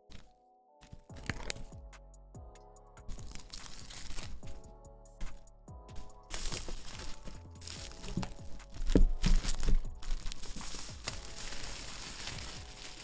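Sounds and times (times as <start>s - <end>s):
plastic wrap peeling and crinkling: 1.1s - 1.7s, 3.1s - 4.6s, 6.0s - 13.0s.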